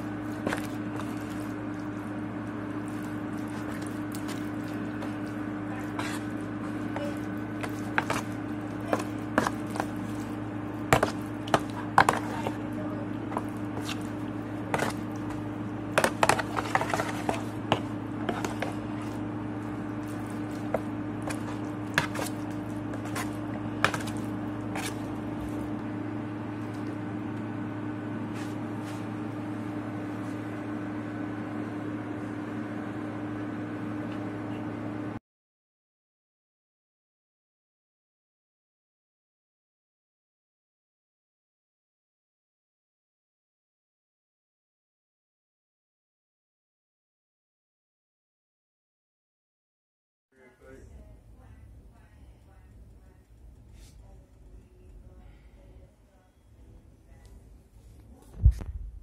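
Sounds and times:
wet squishing: 0.0s - 12.7s, 16.0s - 25.8s
spoon scraping foil pan: 16.0s - 19.2s, 20.0s - 25.2s.

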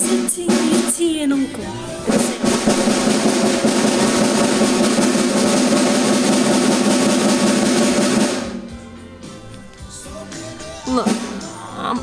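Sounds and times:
fast drum kit roll: 0.0s - 1.3s, 2.0s - 8.7s.

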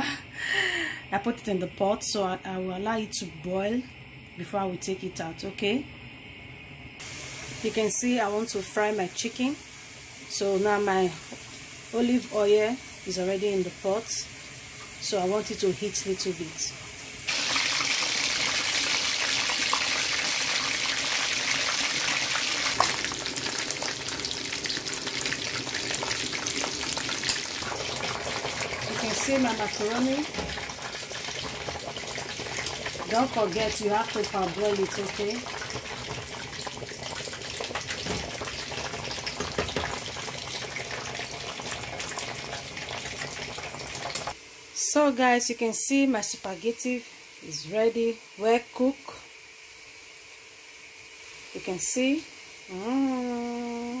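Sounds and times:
chicken sizzling in hot oil: 7.0s - 44.7s
water boiling and bubbling: 7.0s - 44.7s.

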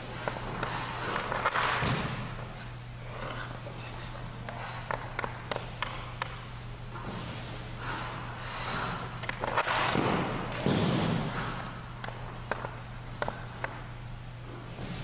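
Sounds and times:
steady low hum: 0.0s - 15.0s
skate blades scraping ice: 2.4s - 13.9s
stick and pads tapping: 4.4s - 6.5s, 9.2s - 13.9s.

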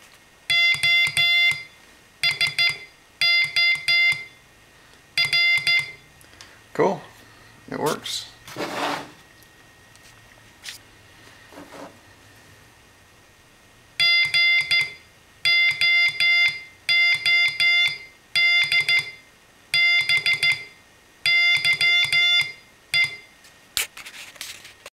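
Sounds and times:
morse code oscillator beeping: 0.5s - 4.4s, 5.2s - 6.1s, 14.0s - 23.3s
rustle of handling: 23.4s - 24.9s.

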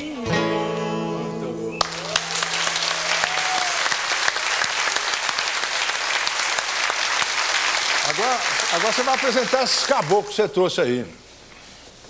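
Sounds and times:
audience applauding: 1.8s - 10.5s.

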